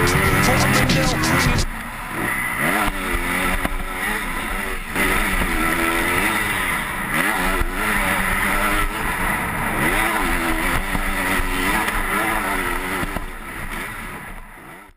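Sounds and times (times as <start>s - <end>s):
motocross bike engine revving: 0.0s - 14.9s.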